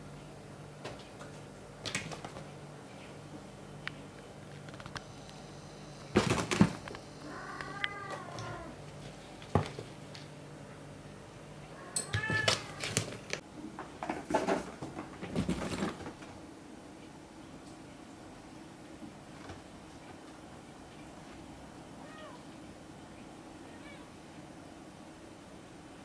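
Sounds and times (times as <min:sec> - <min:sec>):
knocks and rustles: 0:06.2 - 0:06.9, 0:12.1 - 0:16.4.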